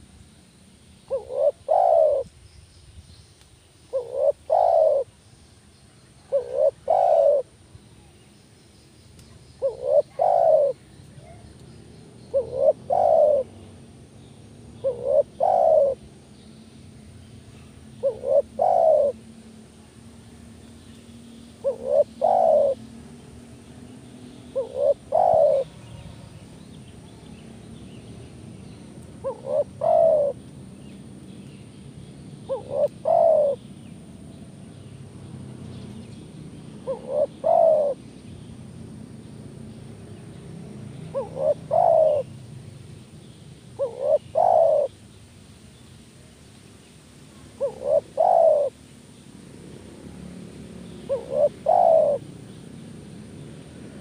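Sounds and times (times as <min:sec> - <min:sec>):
dove cooing: 0:01.1 - 0:02.3, 0:03.9 - 0:05.1, 0:06.2 - 0:07.5, 0:09.6 - 0:11.4, 0:12.3 - 0:13.6, 0:14.8 - 0:16.0, 0:18.0 - 0:19.2, 0:21.6 - 0:22.8, 0:24.5 - 0:25.9, 0:29.2 - 0:30.4, 0:32.5 - 0:33.6, 0:36.8 - 0:38.0, 0:41.1 - 0:42.3, 0:43.8 - 0:44.9, 0:47.5 - 0:48.8, 0:51.1 - 0:52.3.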